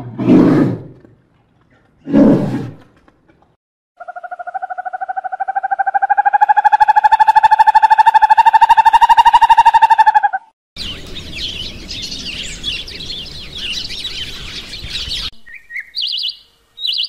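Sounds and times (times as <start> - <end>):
bird trilling: 4.0 - 10.5.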